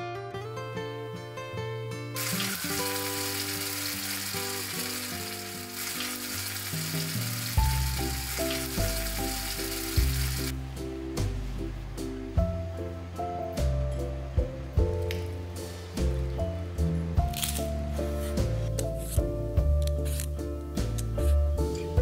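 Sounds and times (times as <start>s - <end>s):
acoustic guitar music: 0.0s - 10.4s
sizzling in hot oil: 2.2s - 10.6s.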